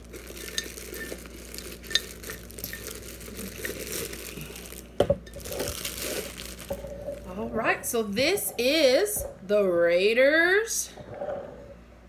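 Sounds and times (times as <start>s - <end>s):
plastic wrapping crinkling: 0.0s - 8.6s.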